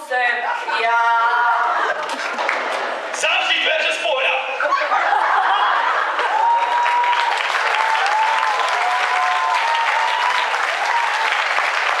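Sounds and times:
audience applauding: 1.9s - 3.8s, 5.1s - 12.0s.

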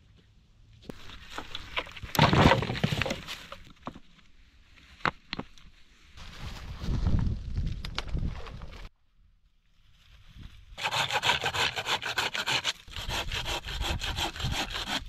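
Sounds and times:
dry branches rustling and scraping: 0.8s - 8.9s
dry leaves and twigs rustling: 0.9s - 8.9s.

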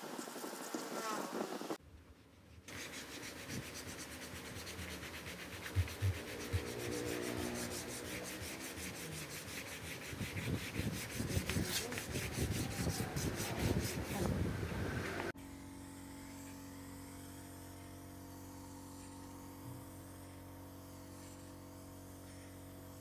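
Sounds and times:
fingers rubbing phone microphone: 2.6s - 14.5s.

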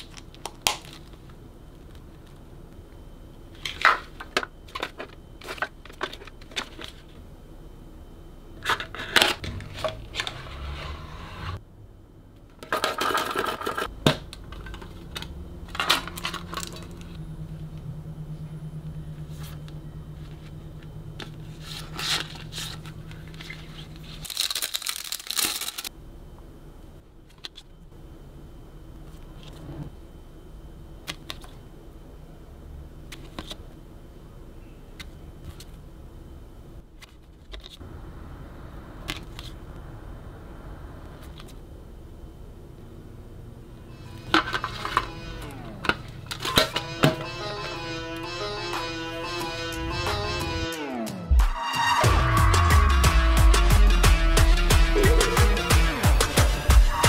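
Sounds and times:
packaging crinkling and tearing: 21.8s - 25.9s.

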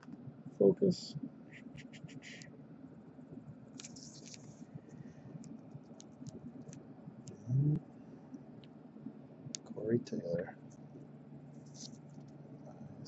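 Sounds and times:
crinkly plastic rustle: 3.8s - 4.6s
fingers handling plastic card sleeve: 3.8s - 4.6s.

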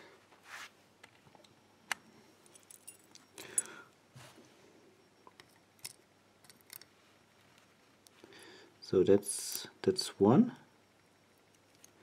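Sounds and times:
keys clinking: 2.4s - 3.8s, 5.4s - 6.9s.

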